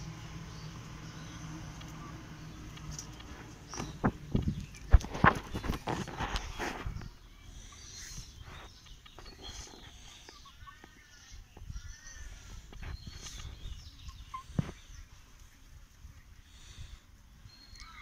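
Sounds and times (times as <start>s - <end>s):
faint high chirps: 6.9s - 15.6s, 17.4s - 18.0s.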